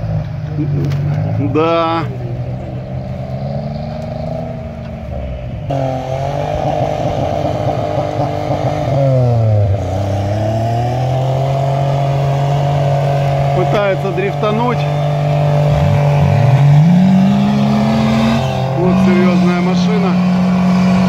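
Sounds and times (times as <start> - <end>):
suv engine revving: 0.0 - 21.0.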